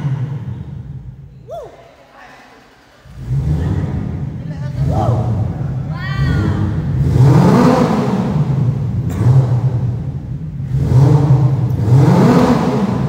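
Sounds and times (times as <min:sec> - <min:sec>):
man imitating car engine: 0:03.0 - 0:08.6.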